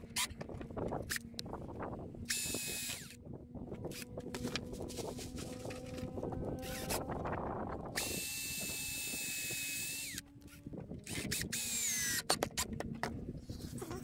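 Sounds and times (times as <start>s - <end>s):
cordless drill whining: 2.3s - 3.2s, 6.6s - 7.0s, 8.0s - 12.7s
handling rustle: 3.8s - 6.8s.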